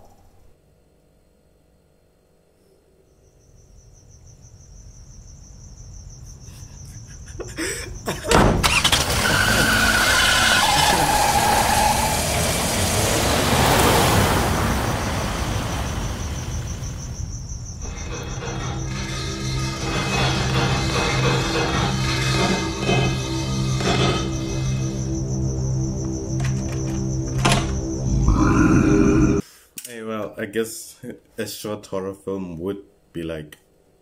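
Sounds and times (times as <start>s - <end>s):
crickets chirping: 0.0s - 29.4s
short squeals: 8.2s - 12.6s, 17.8s - 25.0s
truck engine: 8.2s - 16.7s, 17.8s - 29.4s.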